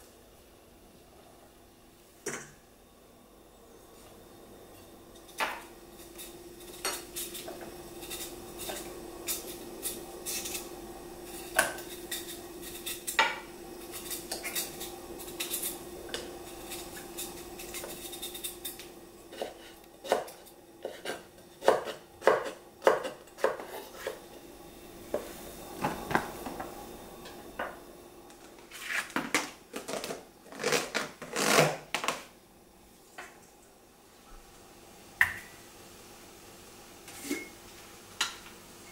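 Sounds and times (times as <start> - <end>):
faint steady hum: 0.0 - 38.9
knife on wooden cutting board: 11.4 - 24.2.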